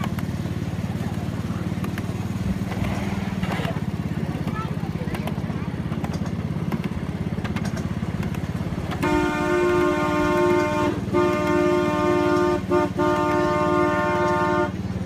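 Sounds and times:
small engine putter: 0:00.0 - 0:13.4
two-note horn: 0:08.9 - 0:14.8.

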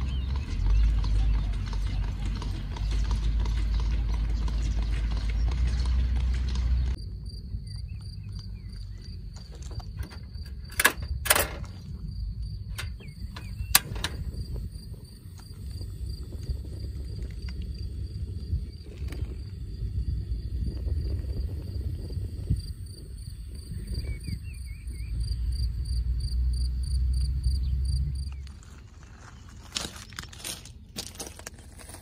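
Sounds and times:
horse hooves clip-clopping: 0:00.0 - 0:07.0
loud low rumble: 0:11.6 - 0:28.3
stove igniter clicking: 0:12.8 - 0:14.4.

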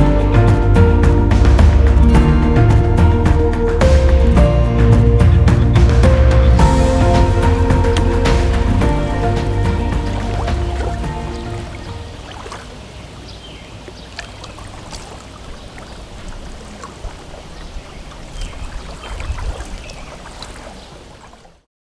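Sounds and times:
low rumble: 0:00.0 - 0:12.2
background music: 0:00.0 - 0:12.5
lake water lapping: 0:03.2 - 0:21.7.

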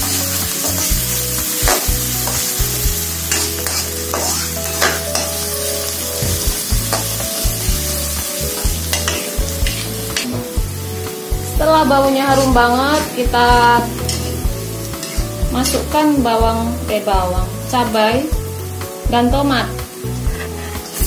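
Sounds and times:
metal spatula scraping a wok: 0:00.0 - 0:07.8, 0:08.5 - 0:10.5, 0:12.2 - 0:15.8, 0:20.2 - 0:21.0
garlic sizzling in hot oil: 0:00.0 - 0:21.0.

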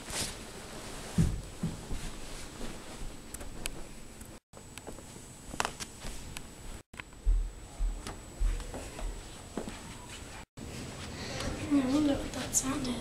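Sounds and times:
bedding rustling: 0:00.0 - 0:04.2.

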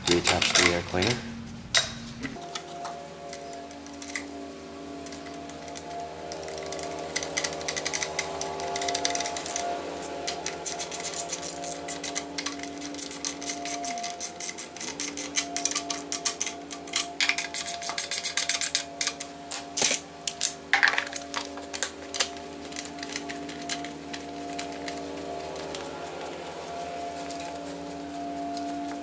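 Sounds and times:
plastic parts clicking and knocking: 0:00.0 - 0:01.1
steady background hum: 0:00.0 - 0:29.0.

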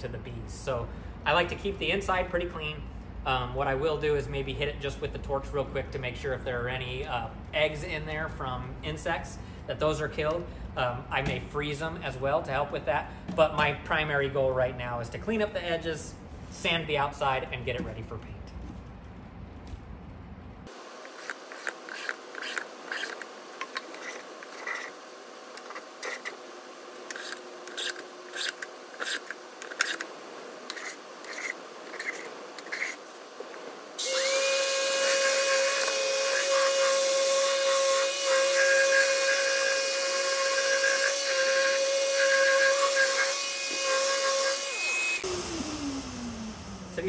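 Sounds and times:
orbital sander whining: 0:20.7 - 0:30.1, 0:34.0 - 0:47.0
hand tool scraping wood: 0:21.0 - 0:25.0, 0:25.6 - 0:26.4, 0:27.0 - 0:30.1, 0:30.7 - 0:33.2.

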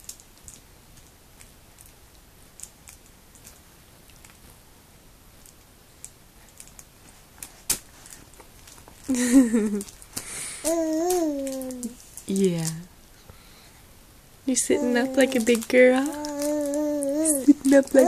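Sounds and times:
infant babbling: 0:10.6 - 0:12.0, 0:14.6 - 0:18.0.

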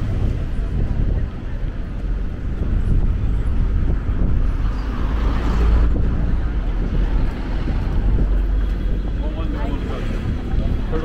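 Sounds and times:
road traffic passing: 0:00.0 - 0:11.0.

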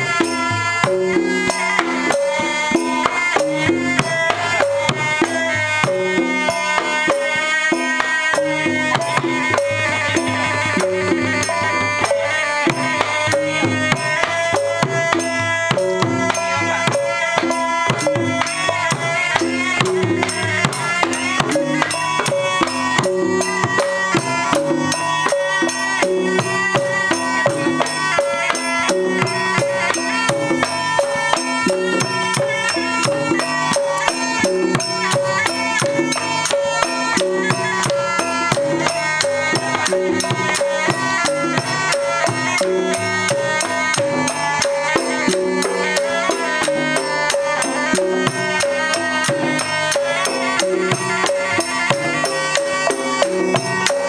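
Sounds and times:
drums playing fast beat: 0:00.0 - 0:54.0
small jingling cymbals: 0:00.0 - 0:54.0.

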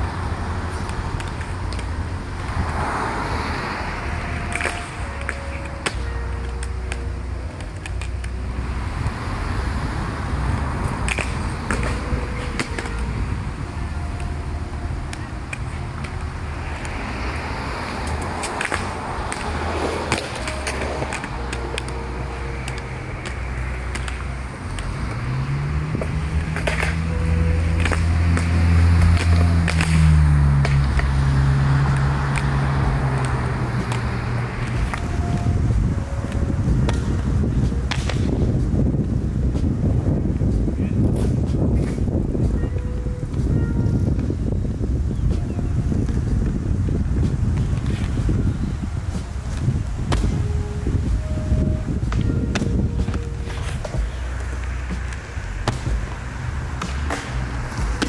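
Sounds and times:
engine droning: 0:00.0 - 0:58.0
skate wheels rolling on concrete: 0:00.0 - 0:58.0
sharp clicks from skates: 0:00.7 - 0:02.7, 0:03.9 - 0:08.4, 0:10.8 - 0:13.1, 0:15.0 - 0:25.2, 0:26.0 - 0:35.5, 0:36.2 - 0:38.5, 0:41.0 - 0:43.5, 0:47.2 - 0:48.4, 0:52.1 - 0:58.0.

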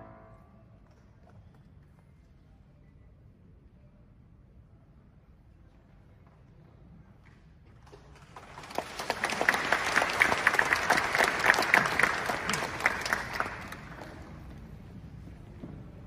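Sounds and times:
audience applauding: 0:07.9 - 0:14.5.

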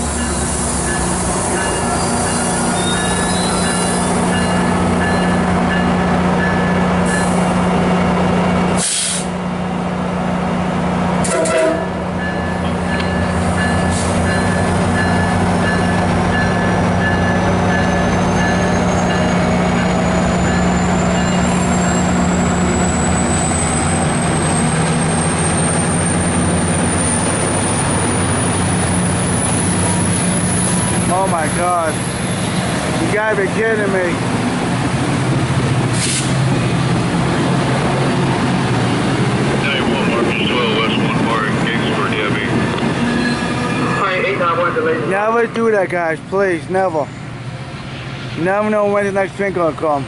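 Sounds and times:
diesel locomotive engine hum: 0:00.0 - 0:50.0
short hisses: 0:08.8 - 0:09.3, 0:36.0 - 0:36.4.

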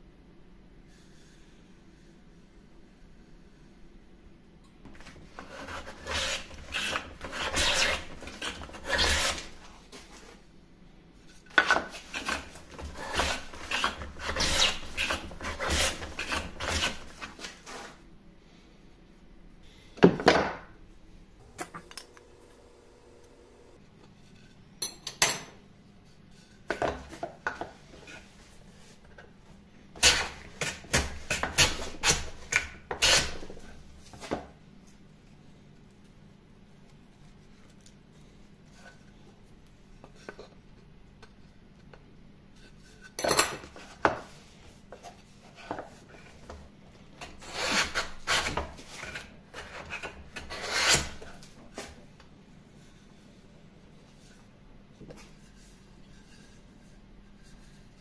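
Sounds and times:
hand plane rasping on wood: 0:05.4 - 0:09.5, 0:12.1 - 0:17.0.

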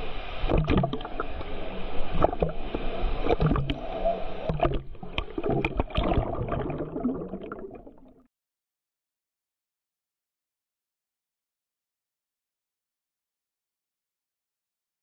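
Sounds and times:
water splashing and gurgling: 0:00.1 - 0:08.3.

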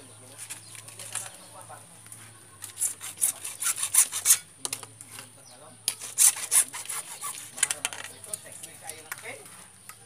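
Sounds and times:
hacksaw cutting plastic pipe: 0:02.6 - 0:04.8, 0:05.9 - 0:08.1.

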